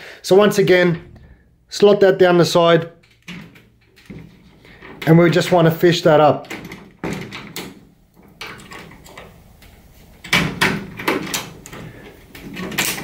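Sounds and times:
lock pick clicking and rattling in lock: 3.0 - 5.7, 6.4 - 9.6, 10.2 - 13.0.

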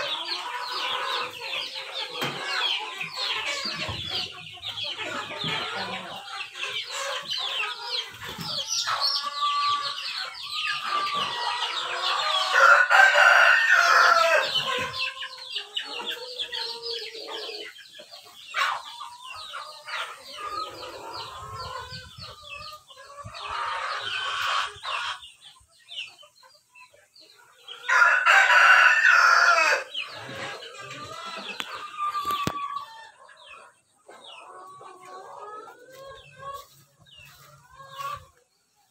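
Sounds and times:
chickens clucking: 0.0 - 38.9
roosters crowing: 5.0 - 17.6, 27.7 - 33.2.

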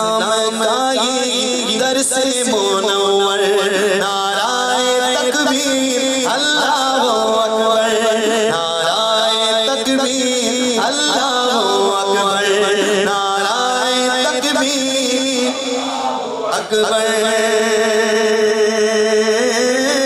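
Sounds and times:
man singing into a microphone: 0.0 - 20.0.

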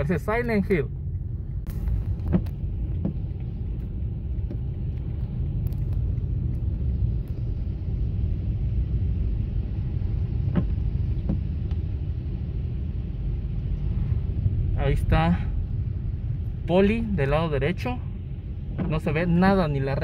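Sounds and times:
car driving on wet road: 0.0 - 20.0
rain hissing: 1.3 - 19.6
light ticks: 1.6 - 7.6.

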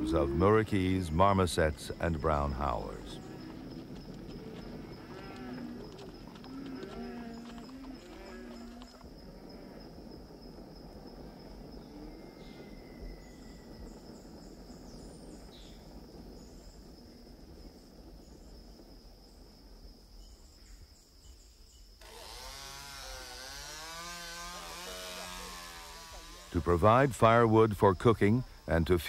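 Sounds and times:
crickets chirping: 0.0 - 29.0
forest ambience rustling hiss: 0.0 - 29.0
chainsaw revving: 22.0 - 26.8.

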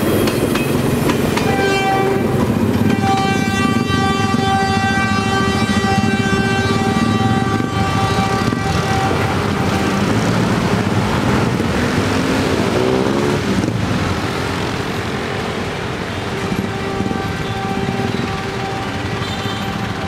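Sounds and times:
train rumbling on rails: 0.0 - 20.0
train horn blast: 1.4 - 11.2, 16.1 - 20.0.

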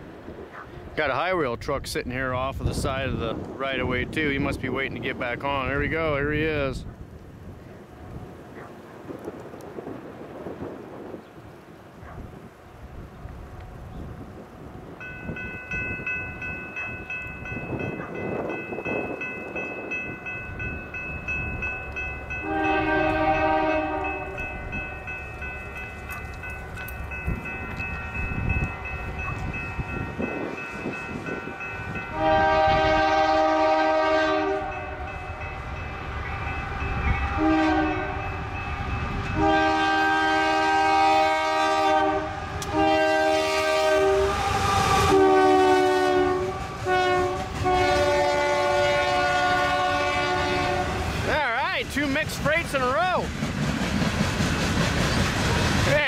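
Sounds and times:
train rumbling: 0.0 - 56.0
locomotive air horn blasts: 22.4 - 24.5, 32.0 - 35.2, 35.9 - 51.1.

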